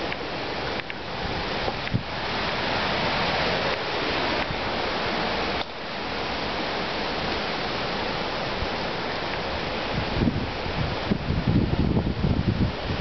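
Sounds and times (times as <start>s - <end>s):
storm wind rushing: 6.4s - 13.0s.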